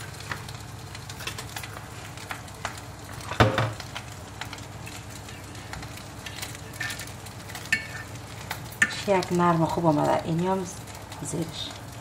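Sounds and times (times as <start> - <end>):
pastry crackling as handled: 0.0 - 12.0.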